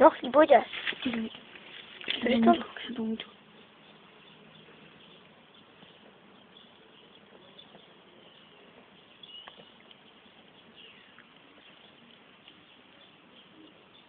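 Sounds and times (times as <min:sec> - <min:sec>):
cardboard box crackling in fire: 0:00.6 - 0:02.6.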